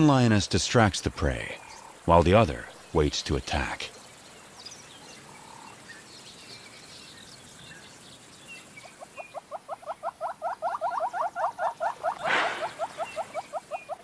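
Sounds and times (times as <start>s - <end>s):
faint small bird chirps: 3.9s - 14.0s
hornbill calling: 8.8s - 14.0s.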